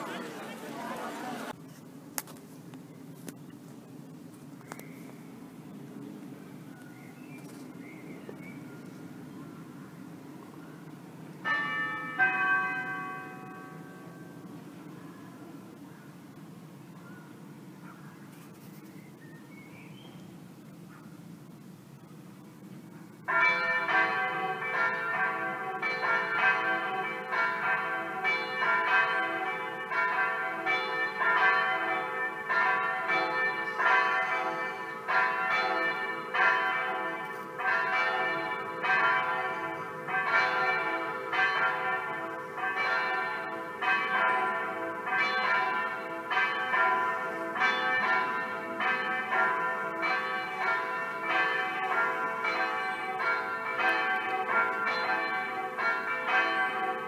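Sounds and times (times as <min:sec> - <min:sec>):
electronic church bells ringing: 0:00.0 - 0:01.6, 0:11.4 - 0:14.5, 0:23.3 - 0:57.0.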